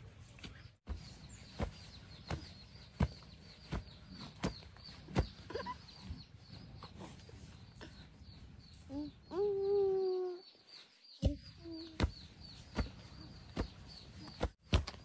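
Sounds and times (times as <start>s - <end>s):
digging stick thudding into earth: 14.4s - 15.0s.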